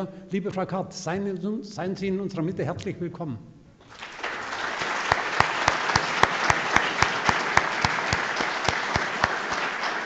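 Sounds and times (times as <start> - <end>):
audience applauding: 3.8 - 10.0
person clapping close to microphone: 3.8 - 10.0.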